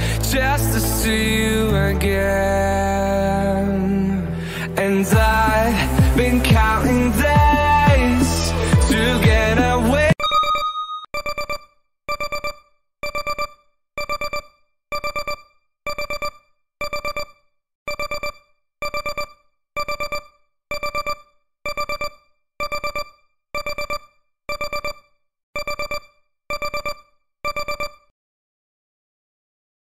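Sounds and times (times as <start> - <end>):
timer alarm beeping: 10.2 - 28.1.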